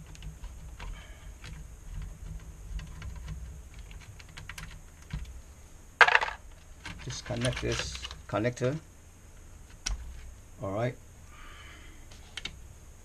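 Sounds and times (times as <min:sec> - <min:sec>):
tool clattering down: 0:06.0 - 0:06.4.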